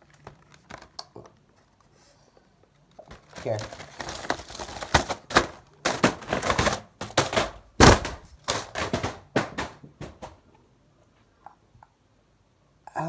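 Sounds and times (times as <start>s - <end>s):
cardboard taps and rustles: 2.9s - 10.4s.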